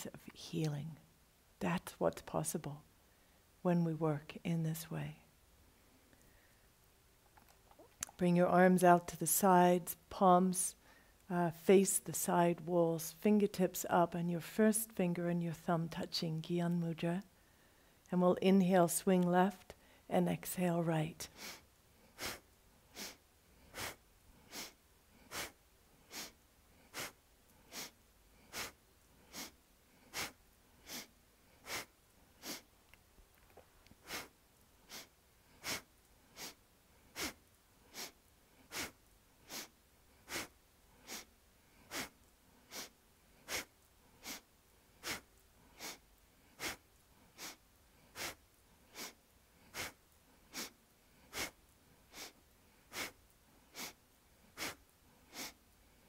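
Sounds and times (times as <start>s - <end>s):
person breathing sharply: 34.9s - 42.1s.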